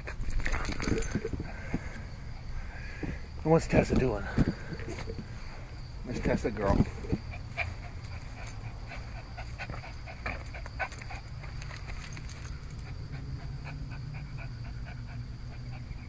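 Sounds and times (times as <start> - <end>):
dog breathing in quick puffs: 0.0 - 3.4, 7.0 - 11.5, 12.4 - 16.0.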